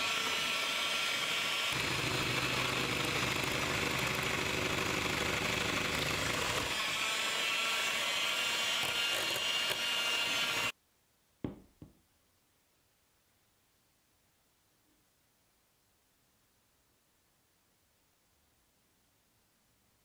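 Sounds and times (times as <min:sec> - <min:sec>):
electric hand mixer whisking: 0:00.0 - 0:10.7.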